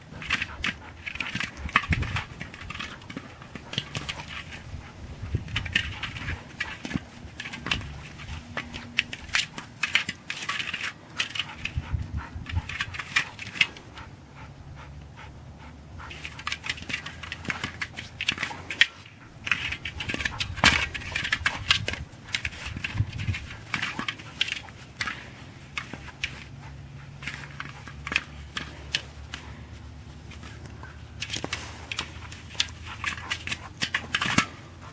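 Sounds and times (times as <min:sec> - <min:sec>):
snow crunching under paws: 0:28.7 - 0:32.8.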